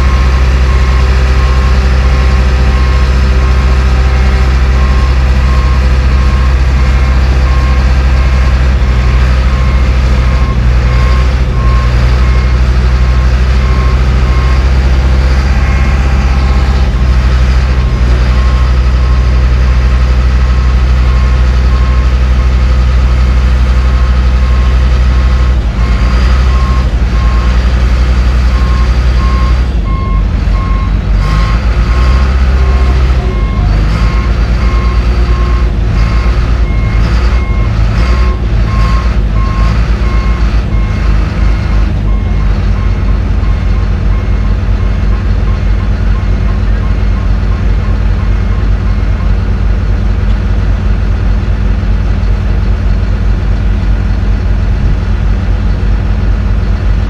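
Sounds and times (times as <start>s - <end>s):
bulldozer diesel engine: 0.0s - 57.0s
backup alarm beeping: 9.5s - 17.5s.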